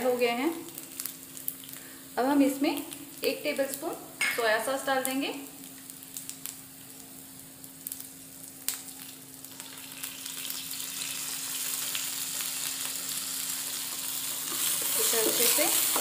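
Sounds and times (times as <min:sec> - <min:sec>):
vegetables sizzling in oil: 0:00.0 - 0:16.0.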